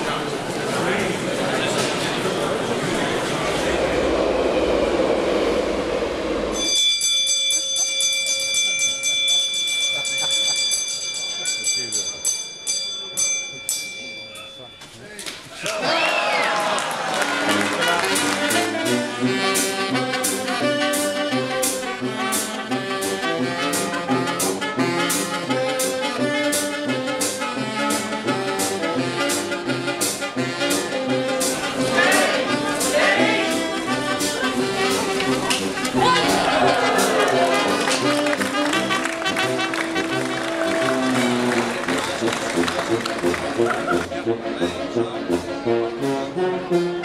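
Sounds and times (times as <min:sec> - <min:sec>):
passenger train passing: 0:00.0 - 0:07.6, 0:31.5 - 0:44.2
bell ringing rapidly: 0:06.6 - 0:14.8
street band playing brisk tune: 0:17.3 - 0:47.0.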